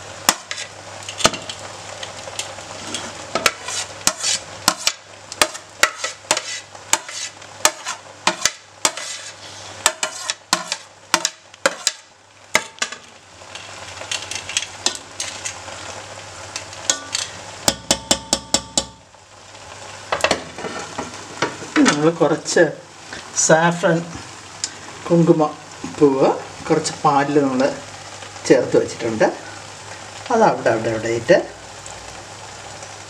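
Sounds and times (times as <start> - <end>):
low sizzle: 0.0 - 33.0
metal spoon scraping pot: 2.9 - 12.0.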